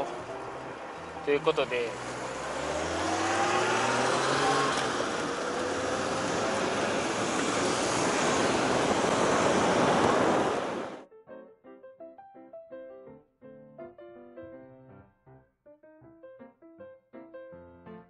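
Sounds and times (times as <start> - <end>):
street traffic: 0.0 - 11.0
piano music: 0.0 - 18.0
electric scooter whine: 2.0 - 11.0
wind rushing over microphone: 2.8 - 11.0.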